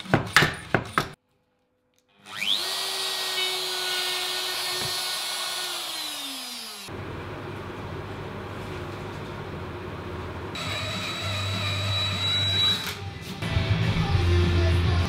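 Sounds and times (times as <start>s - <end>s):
power drill whining: 2.2s - 6.9s, 10.6s - 13.1s.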